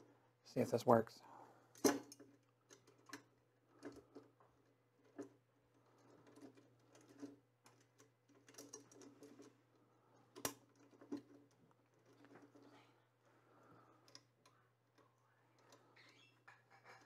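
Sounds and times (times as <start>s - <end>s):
clicks and handling noise: 1.7s - 12.8s.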